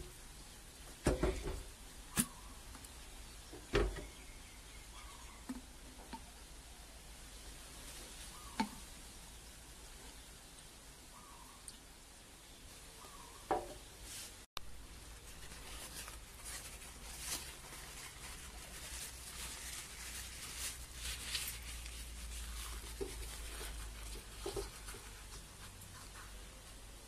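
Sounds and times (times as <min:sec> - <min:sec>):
tissue paper rustling: 0:15.1 - 0:25.7.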